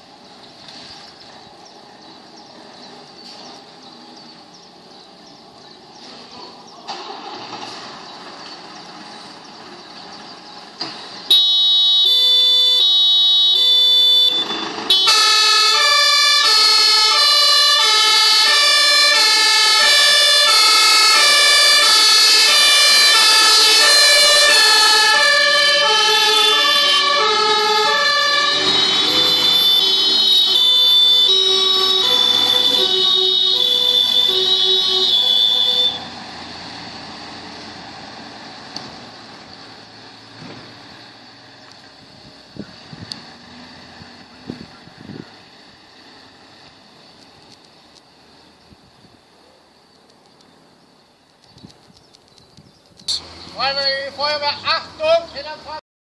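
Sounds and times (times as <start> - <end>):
fire engines running: 0.0 - 55.8
two-tone sirens: 11.2 - 37.3.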